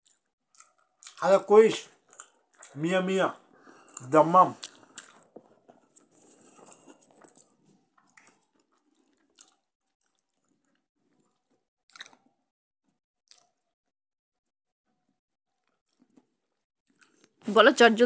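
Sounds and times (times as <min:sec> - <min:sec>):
quiet chewing: 0:00.0 - 0:02.9, 0:03.5 - 0:12.3, 0:13.3 - 0:13.8, 0:15.6 - 0:17.4.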